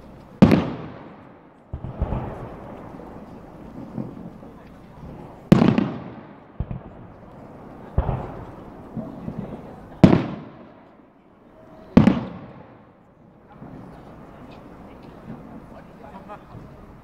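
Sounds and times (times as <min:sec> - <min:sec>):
rumbling echo: 0:00.4 - 0:11.1.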